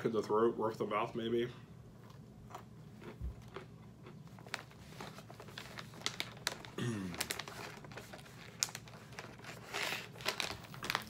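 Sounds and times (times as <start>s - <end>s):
plastic pouch crinkling: 4.3s - 11.0s
man humming: 6.8s - 7.2s.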